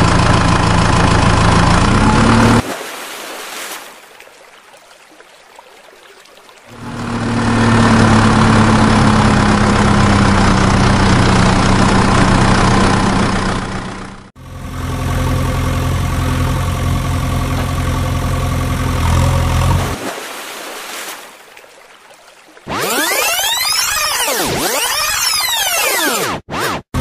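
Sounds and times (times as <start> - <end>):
vehicle engine running: 0.0 - 2.6, 6.7 - 20.0.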